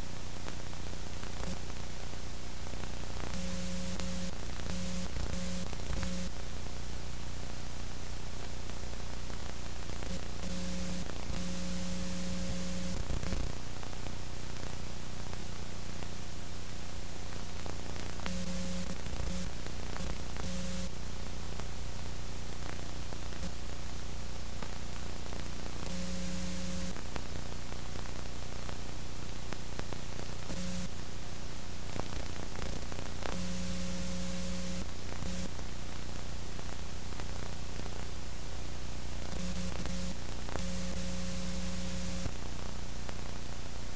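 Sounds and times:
steady hiss and electrical hum: 0.0 - 43.9
short buzzes: 3.4 - 6.3, 18.3 - 19.5, 20.4 - 20.9, 25.9 - 26.9, 39.4 - 42.3.

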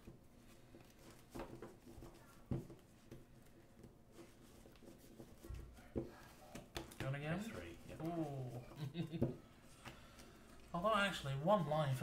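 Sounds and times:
playing cards clicking and rustling: 0.0 - 10.7.

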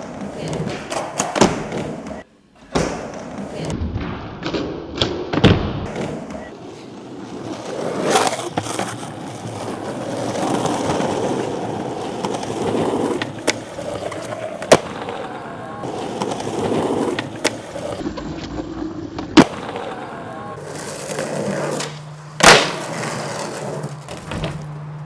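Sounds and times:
skateboard wheels rolling on concrete: 0.0 - 3.8, 4.4 - 25.0
skateboard clacks: 7.6 - 18.6, 19.2 - 25.0.

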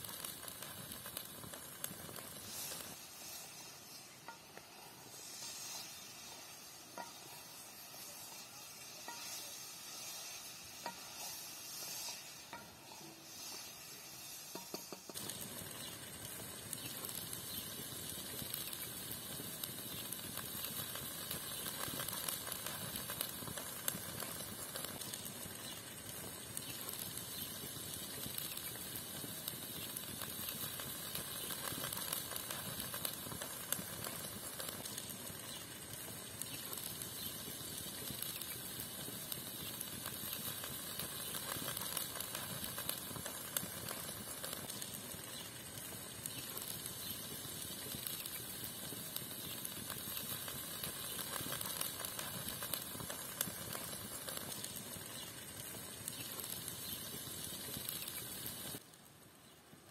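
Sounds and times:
meat sizzling in frying pan: 0.0 - 58.8
crackles and pops: 0.0 - 59.9.

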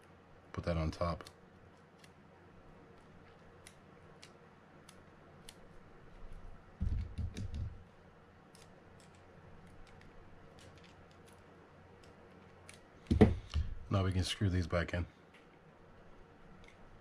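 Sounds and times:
dull handling bump: 13.1 - 13.8.

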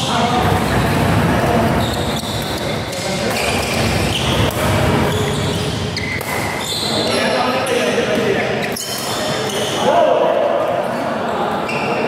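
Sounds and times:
shoes thudding and squeaking on court: 1.7 - 7.2
rackets hitting shuttlecock: 2.3 - 5.1, 6.0 - 6.6.

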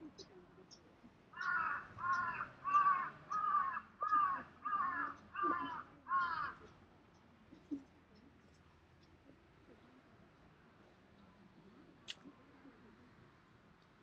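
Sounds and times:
crow cawing: 1.4 - 6.7.

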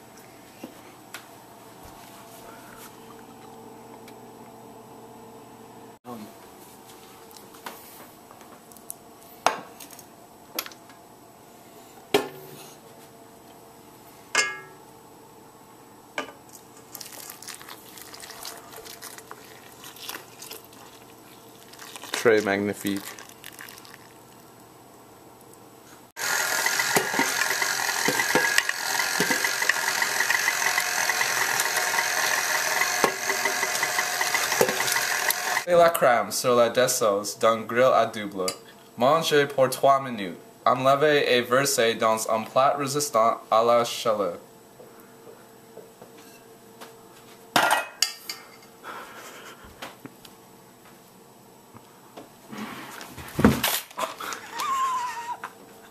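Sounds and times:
stand mixer motor running: 26.2 - 35.7
metal pot and utensils clattering: 47.6 - 48.6.

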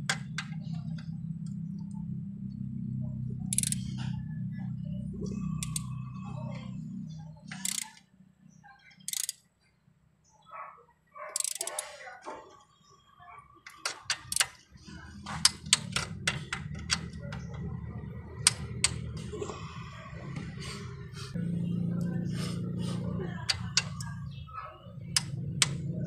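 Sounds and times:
socket ratchet clicking: 3.5 - 3.9, 5.6 - 5.9, 7.5 - 8.0, 9.0 - 9.4, 11.4 - 11.9, 13.7 - 14.6, 15.4 - 17.5, 18.4 - 19.1, 23.5 - 24.1, 25.1 - 25.8
steady low hum: 14.1 - 26.0.

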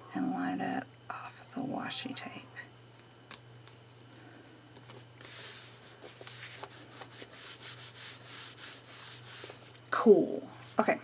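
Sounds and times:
paper rubbing on paper: 4.9 - 9.7.

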